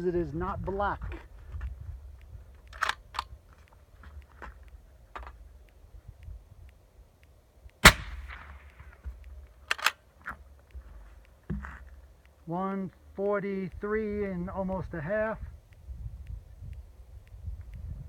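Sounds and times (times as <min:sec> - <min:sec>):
small sharp clicks: 0:00.6 - 0:14.4, 0:15.3 - 0:18.0
suppressed rifle shot: 0:07.8 - 0:10.0.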